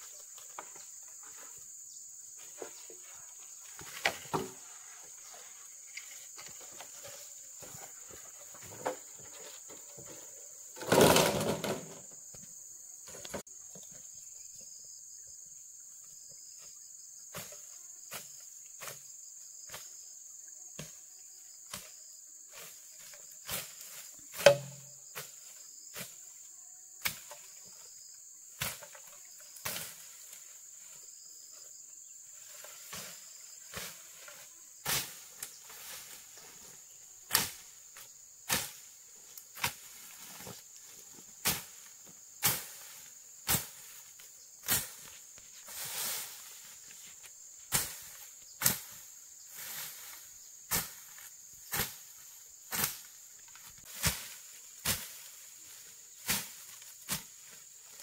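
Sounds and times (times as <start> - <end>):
forest insects droning: 0.0 - 58.0.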